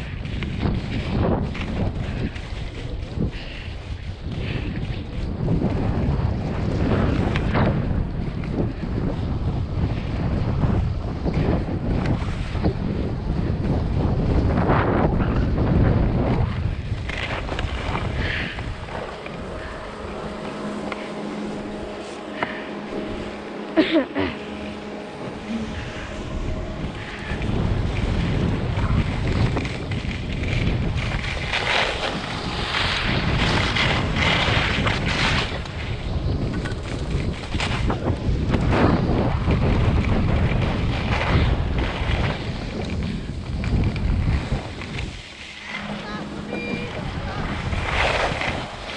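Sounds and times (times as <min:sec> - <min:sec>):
wind buffeting microphone: 0:00.0 - 0:48.9
faint steady hum: 0:16.2 - 0:36.1.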